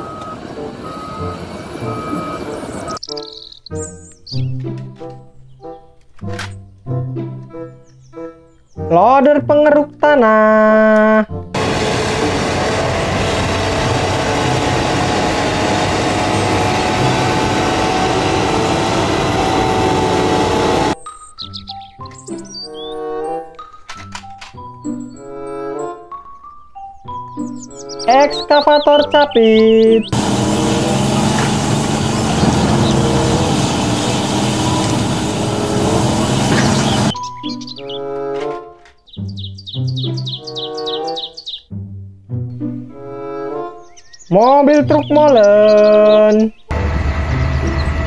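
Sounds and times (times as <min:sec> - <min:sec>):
diesel engine under load: 0:00.0 - 0:03.0, 0:11.6 - 0:21.0, 0:30.0 - 0:37.2, 0:46.7 - 0:48.0.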